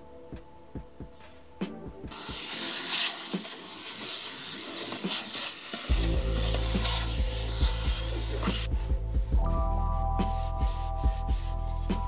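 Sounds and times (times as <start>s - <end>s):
vacuum cleaner hissing: 2.1s - 8.7s
deep steady hum: 7.2s - 12.0s.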